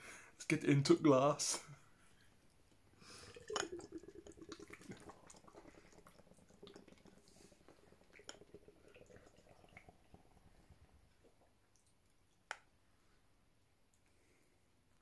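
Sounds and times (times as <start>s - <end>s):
beer gurgling and fizzing: 2.8s - 12.1s.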